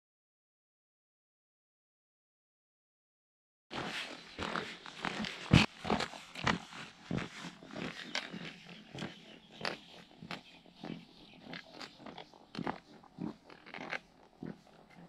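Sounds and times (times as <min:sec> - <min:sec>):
footsteps crunching on stony path: 0:03.7 - 0:15.0.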